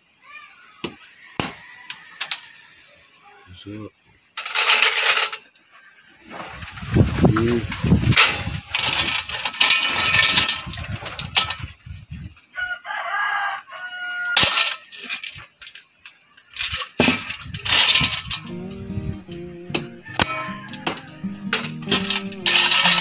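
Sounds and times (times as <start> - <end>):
rooster crowing: 1.1 - 3.0, 12.6 - 14.4, 18.4 - 22.4
scraping and rattling of shells: 4.4 - 5.6, 6.5 - 11.8, 14.4 - 18.5, 20.7 - 23.0.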